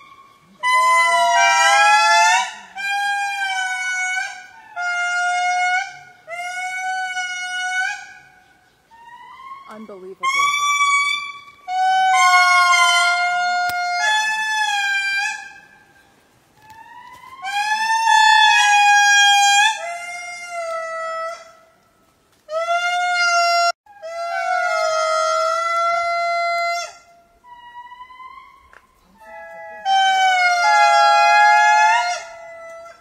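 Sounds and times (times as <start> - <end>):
lemur calling: 0.0 - 21.6.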